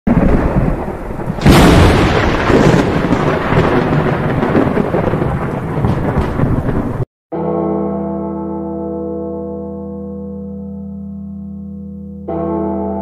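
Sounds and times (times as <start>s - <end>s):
steady rain: 0.1s - 7.1s
thunder: 0.1s - 7.1s.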